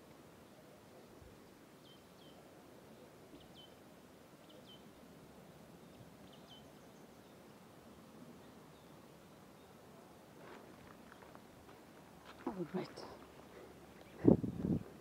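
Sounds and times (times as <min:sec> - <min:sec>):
low outdoor hiss: 0:00.0 - 0:15.0.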